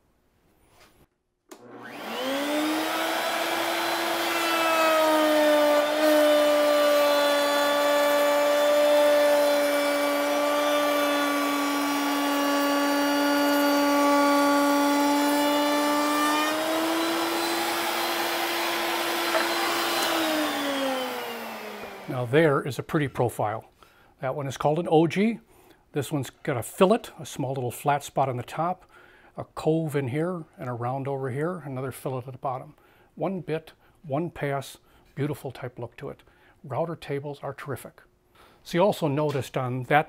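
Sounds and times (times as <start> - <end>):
router motor whine: 1.5 - 22.1.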